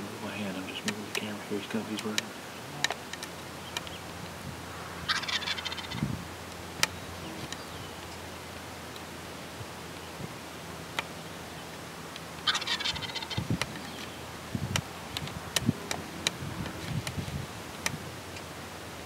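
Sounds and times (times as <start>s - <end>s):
turkey gobbling: 5.0s - 6.1s, 12.4s - 14.2s.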